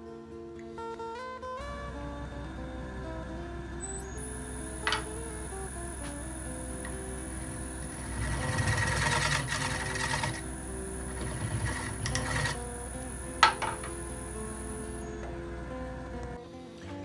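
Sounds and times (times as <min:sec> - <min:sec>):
background music: 0:00.0 - 0:17.0
chisel scraping on wood lathe: 0:03.8 - 0:15.2.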